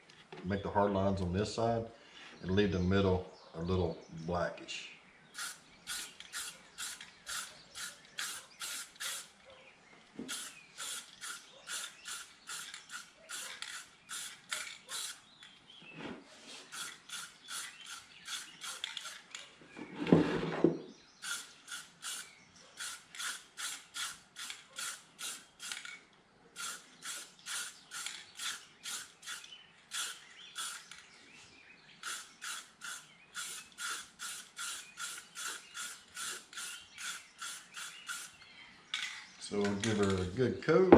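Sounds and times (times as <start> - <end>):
spray paint can hissing bursts: 5.4 - 9.4, 10.3 - 15.2, 16.7 - 19.2, 21.2 - 25.9, 26.6 - 30.9, 32.0 - 38.4.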